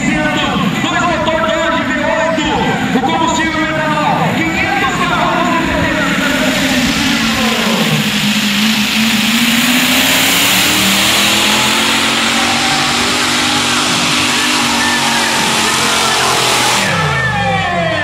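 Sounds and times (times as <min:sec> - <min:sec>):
tractor engine revving under load: 0:04.9 - 0:18.0.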